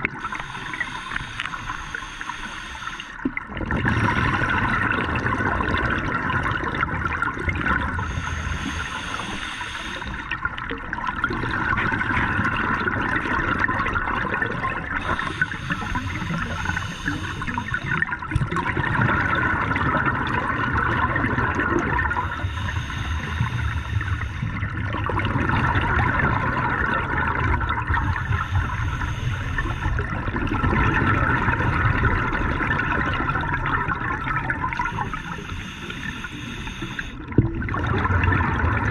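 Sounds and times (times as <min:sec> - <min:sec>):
exhaled air bubbling underwater: 0:00.0 - 0:38.9
regulator inhale hiss: 0:00.2 - 0:03.3, 0:08.0 - 0:10.4, 0:15.0 - 0:18.0, 0:22.0 - 0:24.7, 0:28.0 - 0:30.2, 0:34.7 - 0:37.3.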